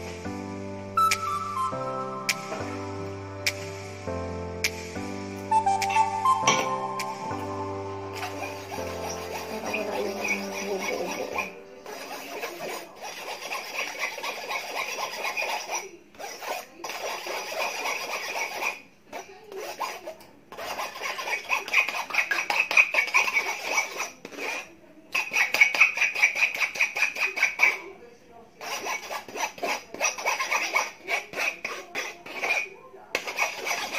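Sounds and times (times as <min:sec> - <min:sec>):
spoon scraping wire-mesh strainer: 0:08.1 - 0:27.9, 0:28.6 - 0:33.9.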